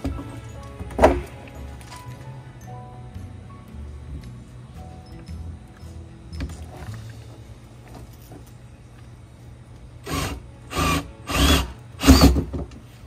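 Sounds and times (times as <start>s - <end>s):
cordless drill boring plastic: 10.0s - 12.5s.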